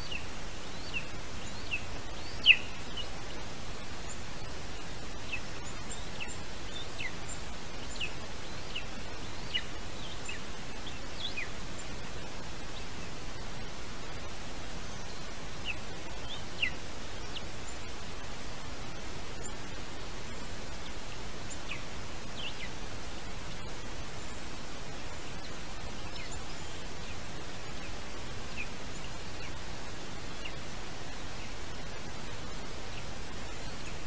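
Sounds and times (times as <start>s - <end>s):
steady hiss: 0.0s - 34.0s.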